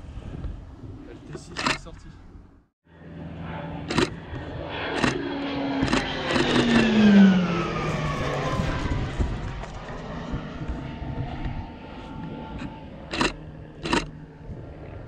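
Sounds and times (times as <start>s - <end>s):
aircraft passing overhead: 0.0s - 15.0s
sharp clicks: 1.3s - 1.9s, 3.9s - 4.2s, 4.9s - 5.2s, 5.8s - 6.9s, 12.6s - 14.1s.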